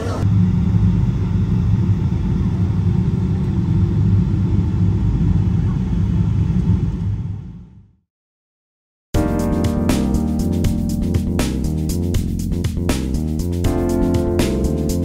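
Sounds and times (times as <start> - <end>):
jet airliner rumble from cabin: 0.0 - 7.8.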